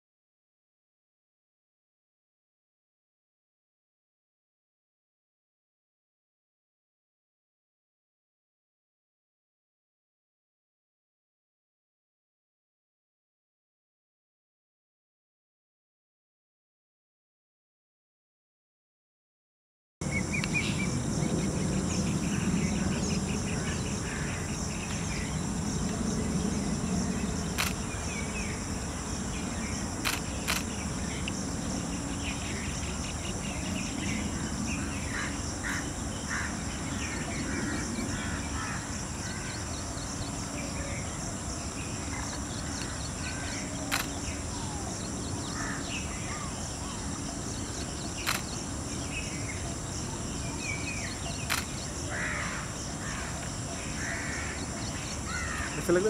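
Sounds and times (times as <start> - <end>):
high insect drone: 20.0 - 56.0
sharp clicks: 27.6 - 27.8, 30.0 - 31.4, 43.9 - 44.2, 48.2 - 48.6, 51.5 - 51.8.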